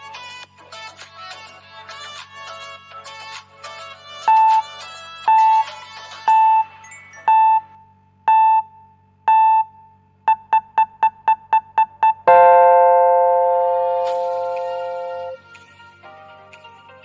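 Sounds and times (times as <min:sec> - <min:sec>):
electronic keyboard notes: 0:00.0 - 0:07.8, 0:10.4 - 0:16.8
long keyboard chord: 0:12.3 - 0:16.6.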